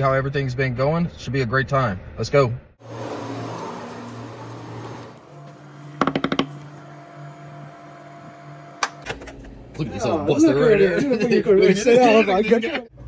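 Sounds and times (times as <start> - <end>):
knocking on door: 6.0 - 6.6.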